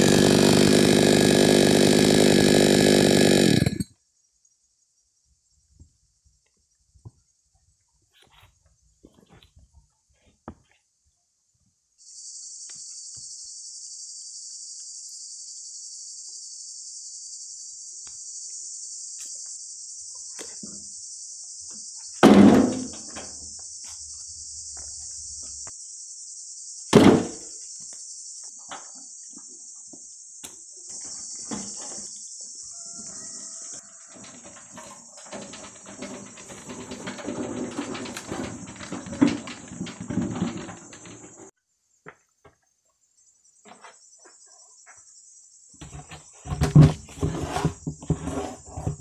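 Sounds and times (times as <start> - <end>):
high insect chorus: 3.1 - 9.9, 11.9 - 49.0
wood slabs thudding into wheelbarrow: 22.2 - 23.3, 26.9 - 27.4, 33.8 - 41.5, 45.8 - 49.0.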